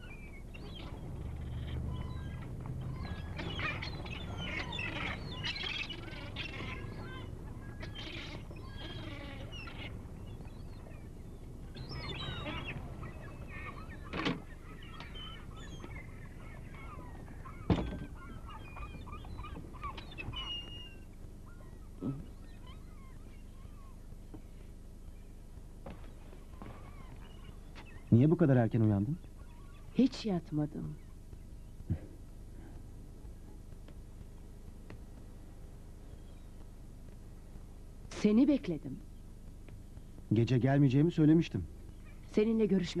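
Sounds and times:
gulls calling: 0:00.0 - 0:43.0.

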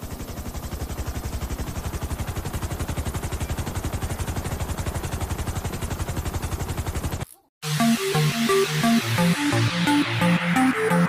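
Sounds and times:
small motor spinning propeller: 0:00.0 - 0:07.4.

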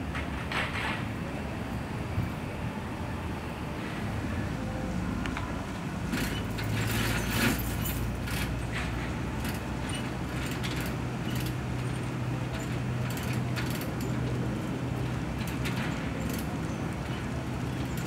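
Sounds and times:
rollsign mechanism clicking and rattling: 0:06.1 - 0:18.0.

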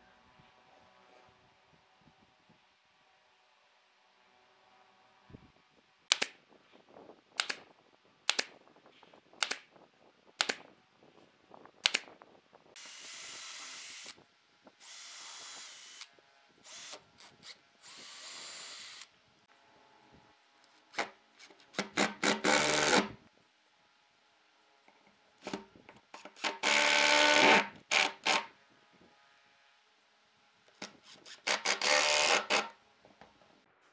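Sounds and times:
cordless drill drilling wood: 0:12.8 - 0:14.2, 0:14.8 - 0:16.1, 0:16.7 - 0:19.1, 0:21.8 - 0:23.1, 0:26.2 - 0:28.5, 0:31.0 - 0:32.7.

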